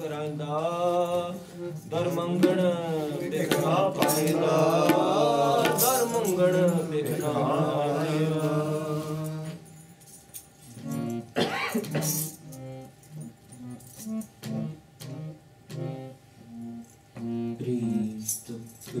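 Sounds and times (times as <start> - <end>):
harmonium drone: 0.0 - 9.6, 10.7 - 18.6
man singing hymn: 0.0 - 9.6, 17.5 - 19.0.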